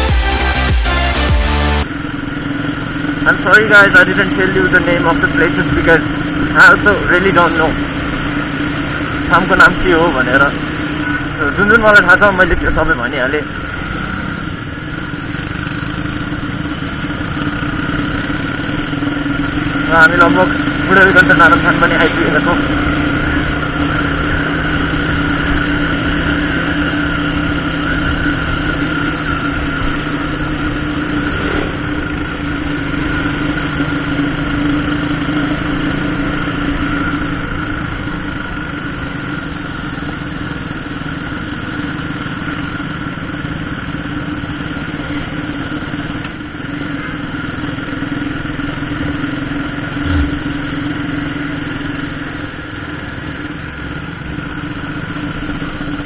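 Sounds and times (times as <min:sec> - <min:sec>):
motorcycle engine running: 0:00.0 - 0:56.0
road noise: 0:00.0 - 0:56.0
short low thump: 0:50.0 - 0:50.4.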